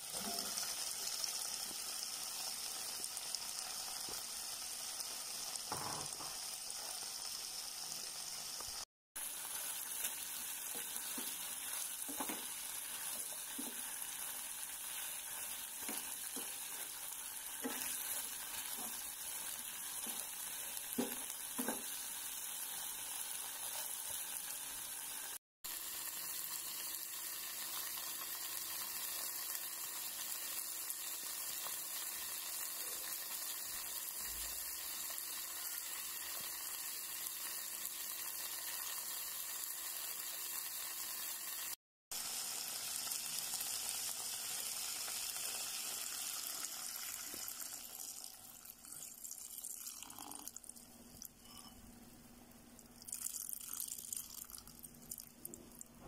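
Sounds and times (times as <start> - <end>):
food sizzling in a pan: 0.0 - 51.9, 53.0 - 56.0
spatula knocking and scraping pan: 5.7 - 6.4, 12.0 - 14.0, 15.7 - 16.9, 17.5 - 19.2, 20.9 - 22.0.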